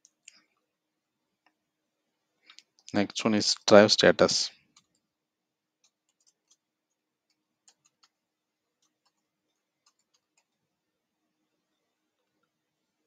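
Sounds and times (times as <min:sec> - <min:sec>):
keyboard keystrokes: 0:05.8 - 0:08.2, 0:08.8 - 0:10.6.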